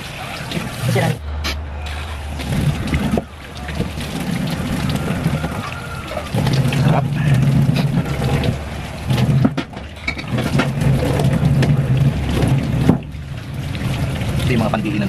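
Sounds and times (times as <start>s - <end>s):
splashing and light knocks: 0.0s - 15.0s
tap water running into sink: 1.9s - 15.0s.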